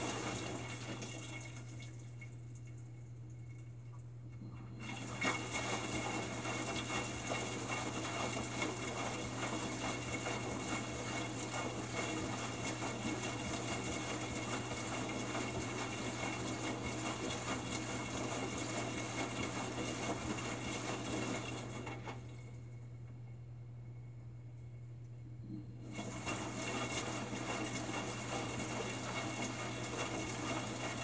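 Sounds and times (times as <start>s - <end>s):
water sloshing in washer drum: 0.0s - 22.8s, 25.7s - 31.0s
low hum: 22.2s - 26.0s.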